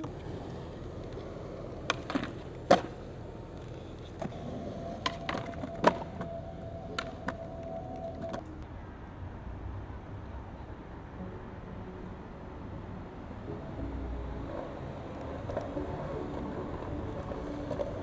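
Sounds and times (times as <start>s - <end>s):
skateboard clacking on concrete: 0.0s - 8.5s, 15.2s - 18.0s.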